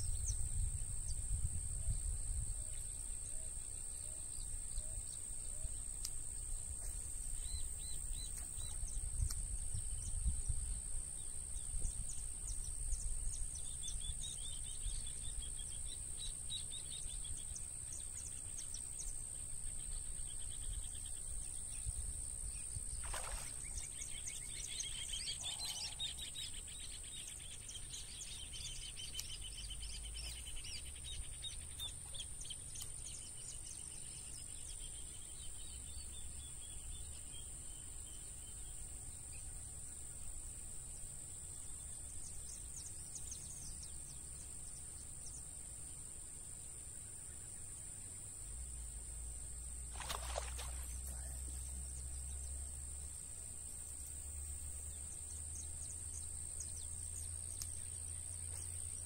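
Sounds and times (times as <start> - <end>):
wind rumble on microphone: 0.0 - 3.6, 6.6 - 15.9
high insect drone: 32.4 - 59.0
birds chirping: 50.0 - 52.7.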